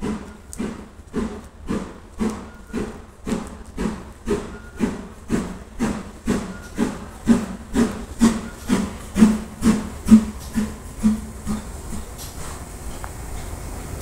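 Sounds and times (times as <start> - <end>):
steam locomotive chuffing: 0.0 - 14.0.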